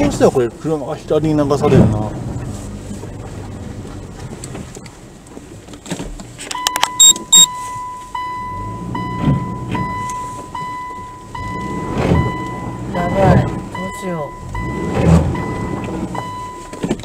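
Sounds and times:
sharp high electronic beeps: 6.7 - 7.5
electronic warning tone: 6.7 - 14.8
car engine running low: 7.6 - 17.0.

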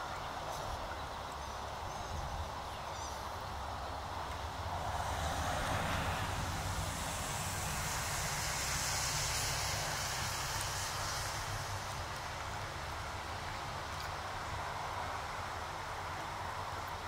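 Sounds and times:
broad hiss: 0.0 - 17.0.

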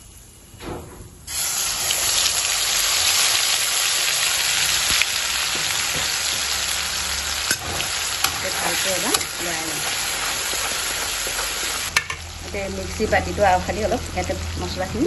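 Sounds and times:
spice paste sizzling in hot oil: 1.3 - 15.0.

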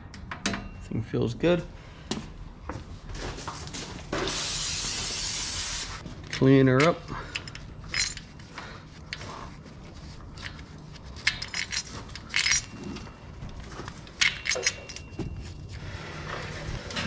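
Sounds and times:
small metal clinks: 6.2 - 8.4, 11.2 - 15.6.

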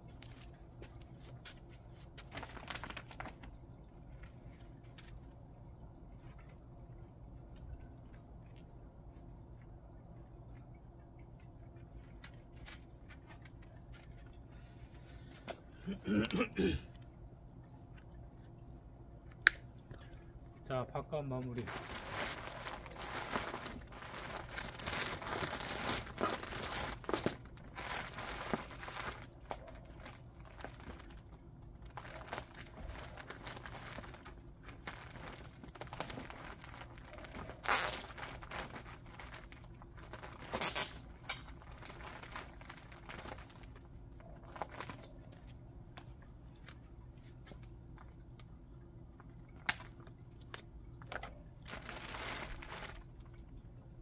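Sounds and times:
sheet material crinkling: 0.0 - 5.4, 21.4 - 45.6, 51.1 - 53.2.

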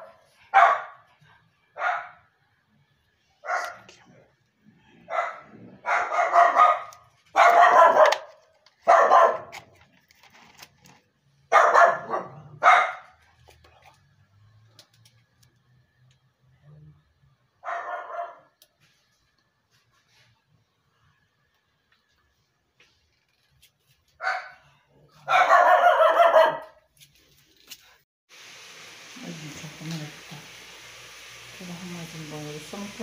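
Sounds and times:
dog barking loudly: 0.0 - 1.1, 1.8 - 2.2, 3.4 - 3.8, 5.1 - 9.6, 11.5 - 13.2, 17.6 - 18.6, 24.2 - 24.6, 25.2 - 26.8.

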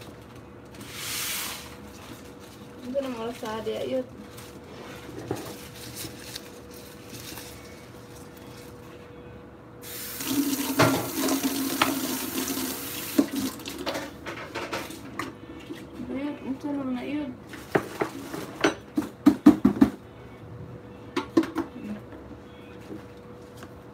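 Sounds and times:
water running from a tap: 9.8 - 13.8.

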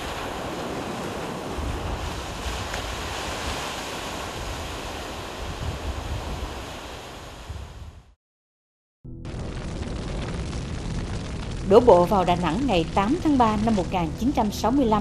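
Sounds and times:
surf breaking on beach: 0.0 - 8.0
wind: 0.0 - 8.1
low rumble: 9.1 - 15.0.

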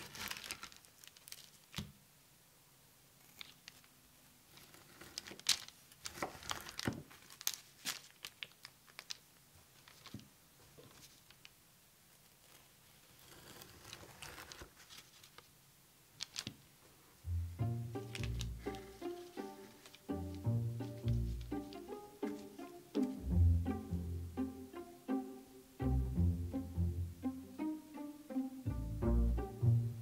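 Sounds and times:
food crinkling and crunching: 0.0 - 1.8, 4.6 - 11.5
soft rustling: 3.2 - 17.3, 18.0 - 23.2.

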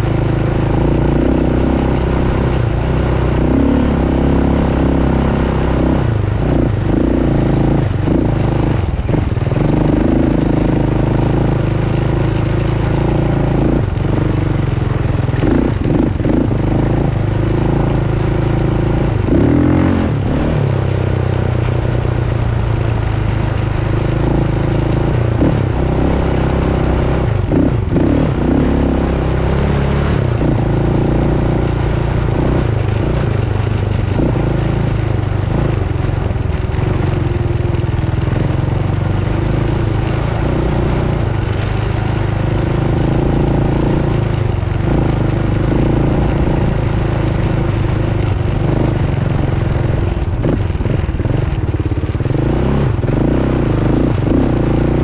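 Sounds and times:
off-road vehicle engine revving: 0.0 - 55.0.

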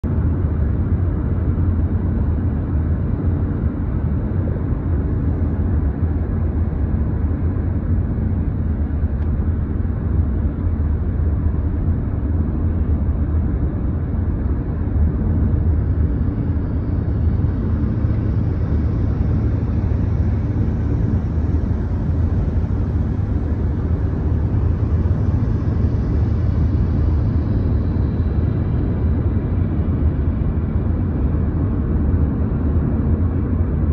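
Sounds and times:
car driving interior rumble: 14.1 - 32.7.

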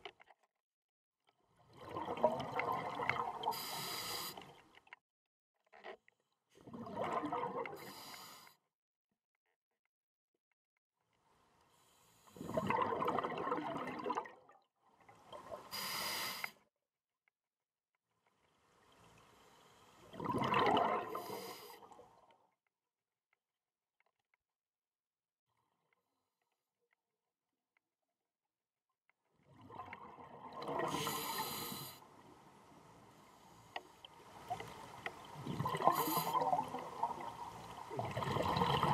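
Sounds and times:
underwater bubbling: 1.7 - 4.6, 6.6 - 8.3, 12.4 - 14.5, 20.0 - 22.2, 29.5 - 38.9
diver breathing through regulator: 3.4 - 4.5, 15.7 - 16.6, 30.8 - 32.0, 35.8 - 36.6.

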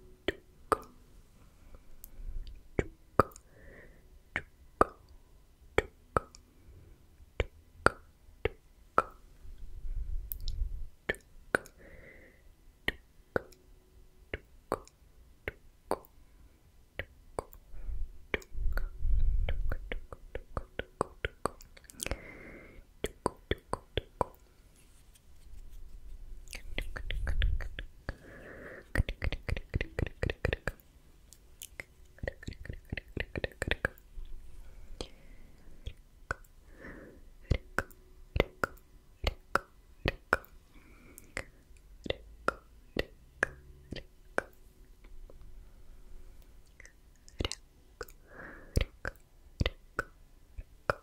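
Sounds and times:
soft hiss: 0.0 - 51.0
breath on the microphone: 3.4 - 4.0, 21.9 - 22.9, 26.6 - 29.2, 36.6 - 37.6, 48.1 - 49.2
wet tongue and lip clicks: 18.3 - 22.2, 26.4 - 28.2, 28.9 - 34.4, 35.8 - 36.6, 41.2 - 45.2, 46.6 - 48.2, 48.8 - 51.0.

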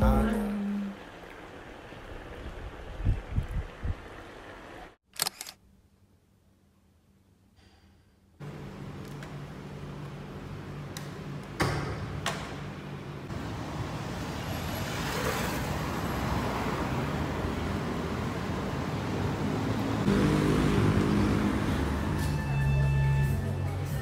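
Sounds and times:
low steady engine tone: 8.4 - 14.9
cars passing by: 13.0 - 24.0.

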